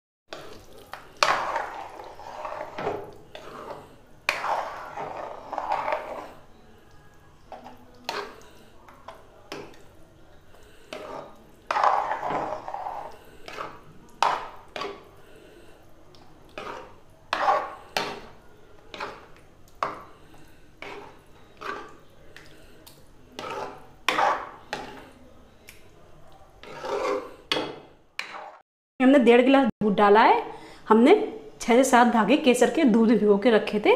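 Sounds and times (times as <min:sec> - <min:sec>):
spatula scraping metal pan: 0:00.3 - 0:06.6, 0:07.5 - 0:09.8, 0:10.4 - 0:15.8, 0:16.5 - 0:25.2, 0:26.6 - 0:28.6.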